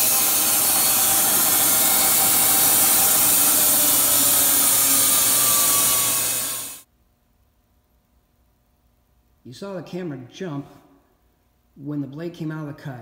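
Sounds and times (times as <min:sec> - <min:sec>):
band sawmill blade hissing: 0:00.0 - 0:06.8.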